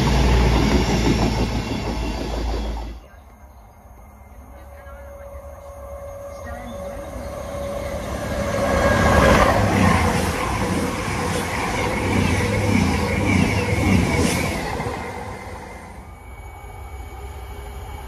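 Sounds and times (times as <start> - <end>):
train wheel clacks: 0.0 - 3.0
train passing: 0.0 - 18.0.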